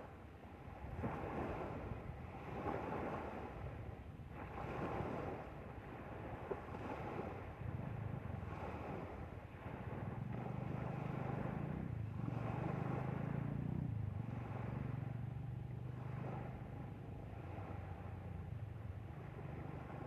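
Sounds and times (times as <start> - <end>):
water rushing past hull: 0.0 - 20.0
boat engine humming: 7.5 - 20.0.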